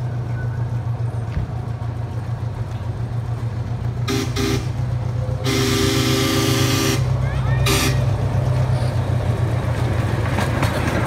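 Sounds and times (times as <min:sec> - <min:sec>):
miniature train horn toots: 0:04.0 - 0:04.8, 0:05.4 - 0:08.2.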